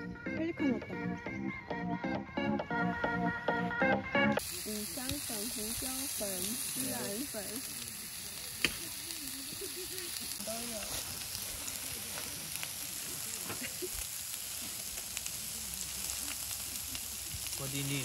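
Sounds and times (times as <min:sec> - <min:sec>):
meat sizzling and crackling: 0:04.4 - 0:18.0.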